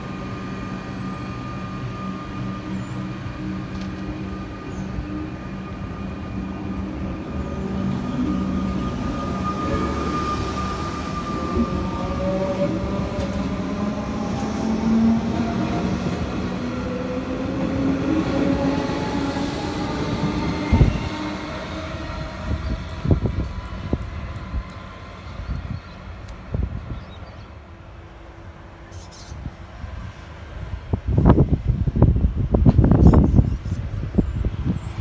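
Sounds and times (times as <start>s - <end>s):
train wheel rumble: 0.0s - 28.6s
traction motors whining: 0.2s - 25.7s.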